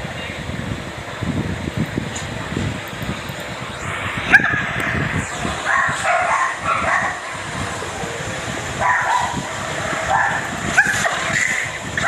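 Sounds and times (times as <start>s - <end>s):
dog barking and yelping: 5.6s - 7.4s, 8.7s - 12.0s.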